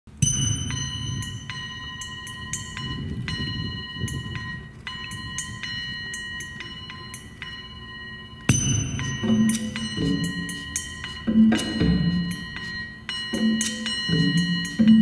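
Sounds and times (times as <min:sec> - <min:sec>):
low rumbling drone: 0:00.1 - 0:15.0
held high tone: 0:00.2 - 0:15.0.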